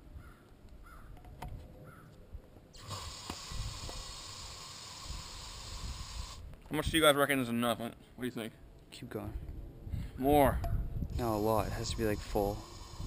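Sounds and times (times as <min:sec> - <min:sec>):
aerosol can hissing: 0:02.8 - 0:06.4, 0:11.1 - 0:13.0.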